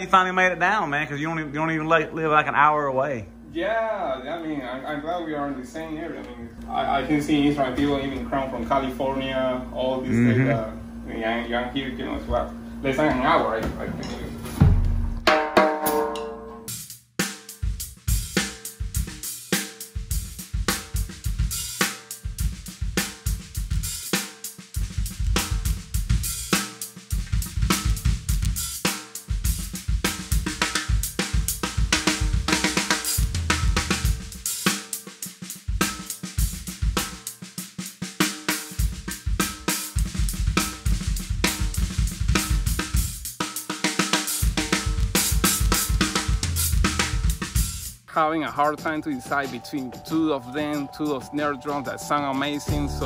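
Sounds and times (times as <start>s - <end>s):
hi-hat and cymbals: 16.7s - 53.0s
kick drum beats: 24.8s - 26.3s, 27.1s - 28.7s.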